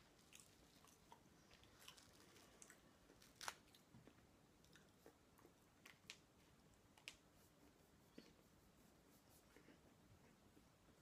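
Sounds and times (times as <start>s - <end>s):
chewing: 0.2s - 5.2s.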